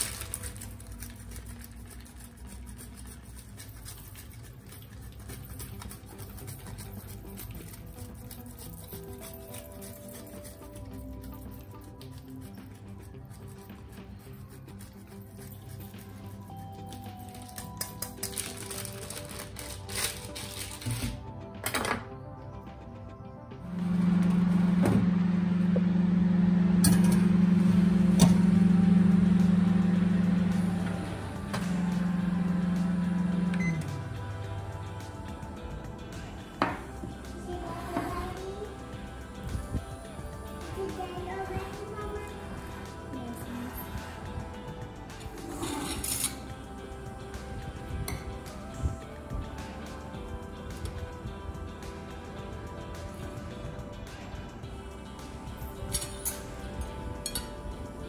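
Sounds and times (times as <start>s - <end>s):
grater rasping on cheese: 0.1s - 21.0s
microwave oven humming: 23.7s - 35.4s.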